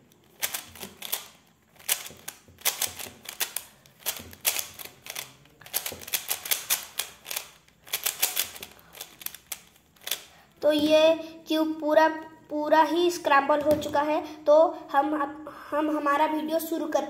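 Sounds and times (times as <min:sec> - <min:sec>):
puzzle cube layers clicking: 0:00.2 - 0:10.3.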